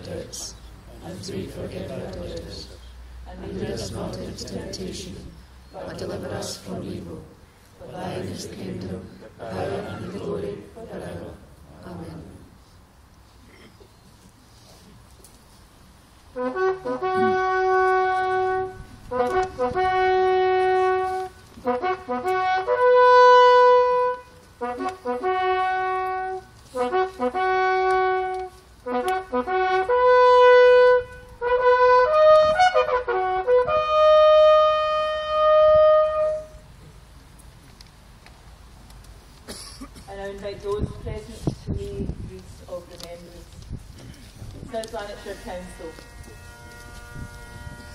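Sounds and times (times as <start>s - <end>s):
solo bugle call: 16.3s - 36.7s, 45.1s - 47.9s.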